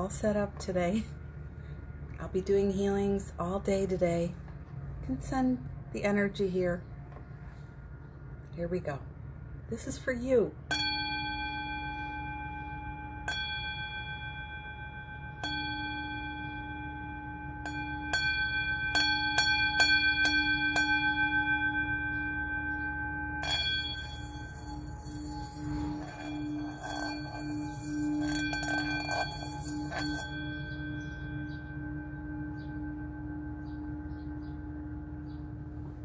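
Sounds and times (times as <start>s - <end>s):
singing bowl struck ringing: 10.6s - 36.0s
mallet rubbed around bowl rim: 10.7s - 36.0s.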